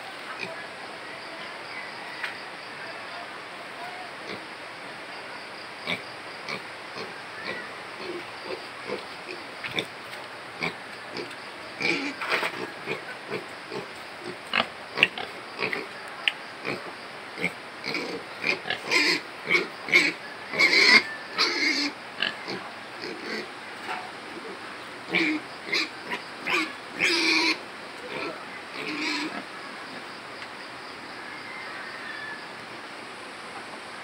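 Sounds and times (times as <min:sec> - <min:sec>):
pig grunting and eating: 0:10.6 - 0:16.0, 0:16.6 - 0:29.5.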